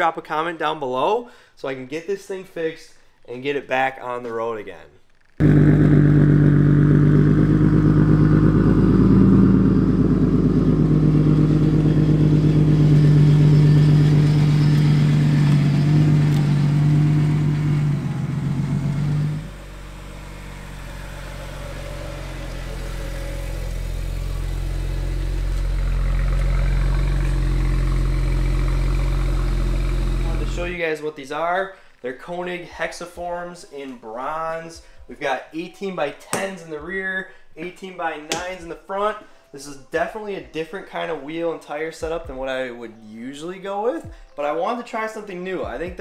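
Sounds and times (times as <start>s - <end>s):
car engine idling: 5.4s - 30.7s
deeper engine idle: 5.4s - 30.7s.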